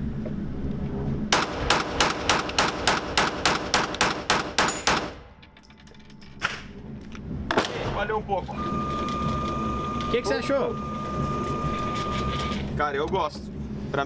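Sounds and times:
pistol shots: 1.3 - 5.3.

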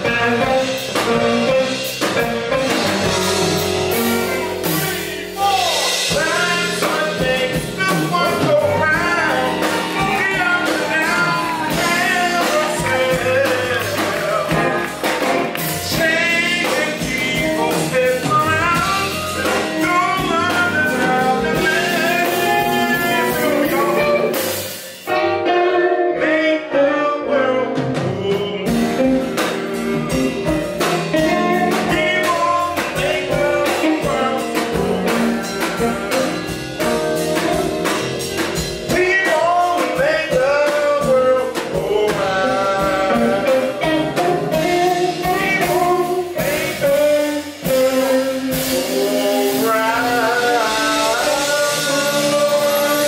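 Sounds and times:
drums: 0.0 - 26.5, 27.2 - 53.0
electric guitar: 0.0 - 40.8, 41.5 - 53.0
man singing: 0.0 - 53.0
saxophone: 0.0 - 53.0.

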